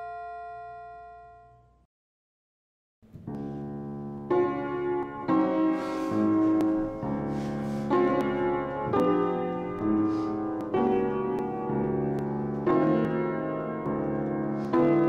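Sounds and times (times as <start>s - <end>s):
slow piano chords: 3.1s - 15.0s.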